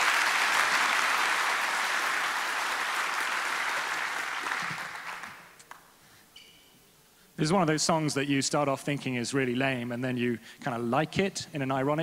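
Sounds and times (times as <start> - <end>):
large audience applauding: 0.0 - 5.6.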